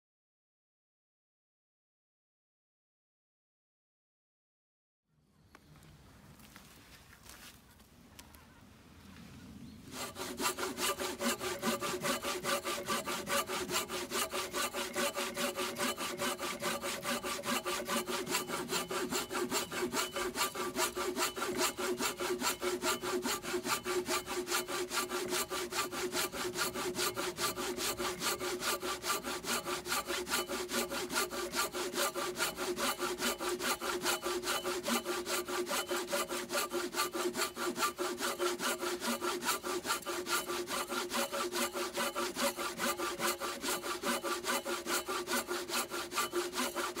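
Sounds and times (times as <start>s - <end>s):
hand saw cutting wood: 9.9s - 47.0s.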